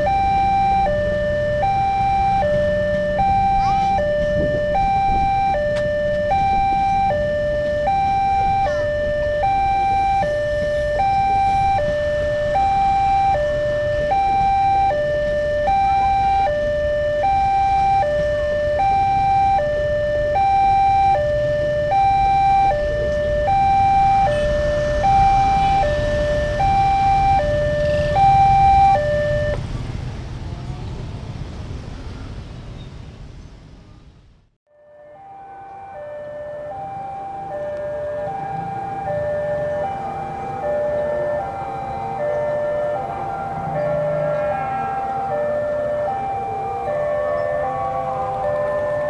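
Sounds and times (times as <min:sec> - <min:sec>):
two-tone crossing alarm: 0:00.0 - 0:29.6, 0:34.7 - 0:49.0
train rumbling past: 0:38.0 - 0:49.0.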